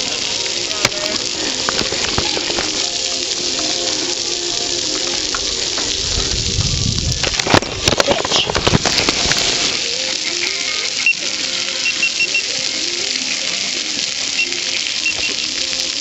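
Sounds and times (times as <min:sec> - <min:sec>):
bicycle rolling noise: 0:00.0 - 0:16.0
faint music: 0:00.0 - 0:16.0
wind rushing: 0:05.4 - 0:09.8
short high beeps: 0:11.8 - 0:12.5.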